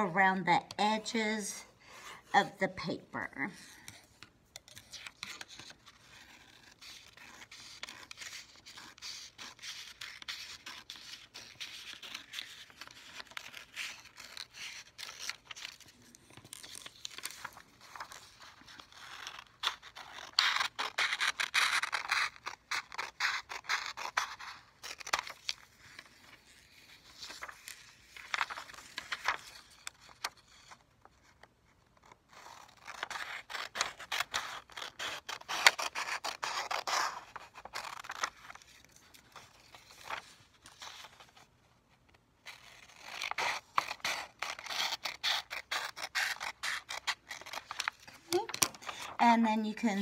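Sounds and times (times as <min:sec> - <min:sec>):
scissors snipping paper: 0:03.7 - 0:25.6, 0:32.3 - 0:40.2, 0:42.4 - 0:49.1.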